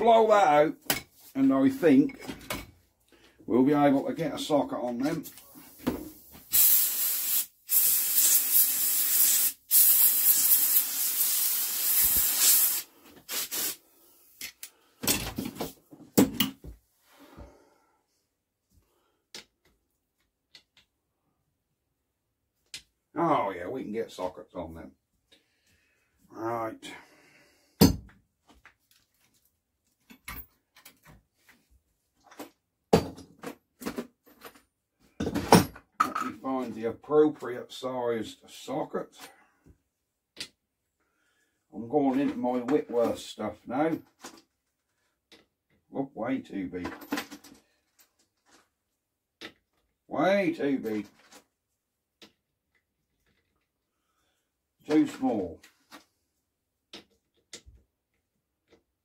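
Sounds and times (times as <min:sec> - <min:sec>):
compressed air blow gun hissing: 0:06.5 - 0:13.9.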